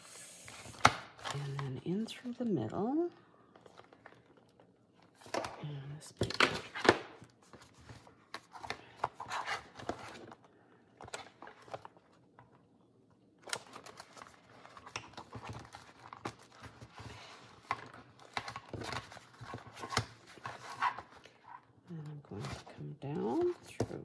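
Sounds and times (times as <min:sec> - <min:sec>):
paper pages rustling: 0:06.6 - 0:12.5, 0:13.4 - 0:21.6.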